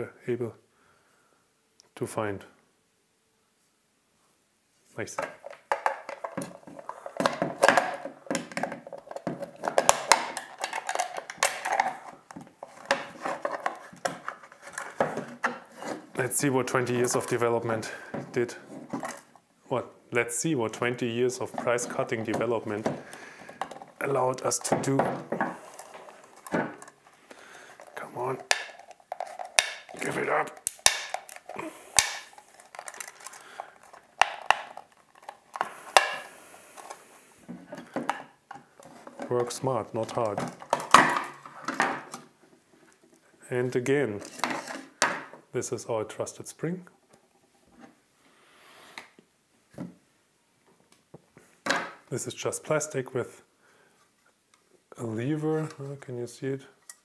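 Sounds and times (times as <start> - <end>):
plastic housing clicking and creaking: 5.2 - 15.7, 27.7 - 36.2
plastic snapping: 7.2 - 15.6, 28.4 - 36.3.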